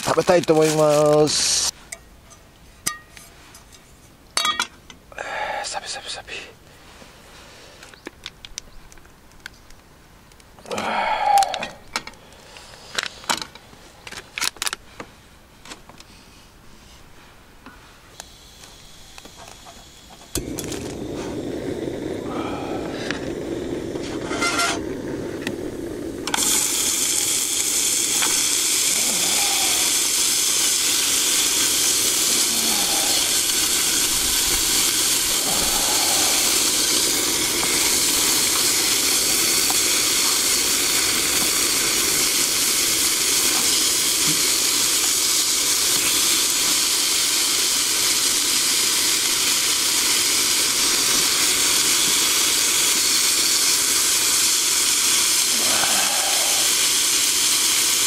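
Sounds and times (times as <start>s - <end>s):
bacon sizzling in a frying pan: 18.4s - 58.0s.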